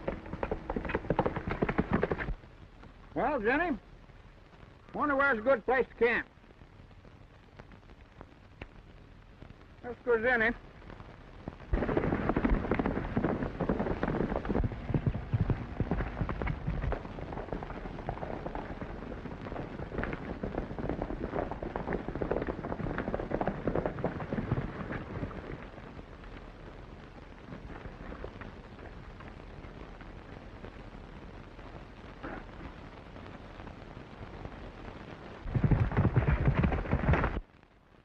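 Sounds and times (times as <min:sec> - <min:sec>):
horses galloping on dirt: 0:00.0 - 0:06.3, 0:11.6 - 0:31.5, 0:35.4 - 0:37.5.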